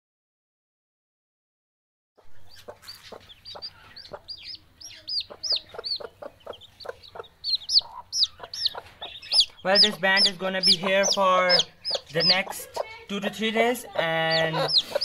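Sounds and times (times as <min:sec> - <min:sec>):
hen clucking softly: 0:02.2 - 0:13.0, 0:13.8 - 0:15.0
chicks peeping: 0:02.2 - 0:15.0.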